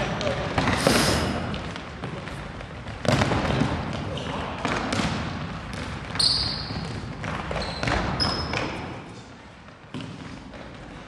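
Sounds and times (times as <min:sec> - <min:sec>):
ball kicked and bouncing: 0:02.0 - 0:04.0, 0:04.6 - 0:08.8, 0:09.8 - 0:10.7
shoes squeaking on floor: 0:06.1 - 0:09.2.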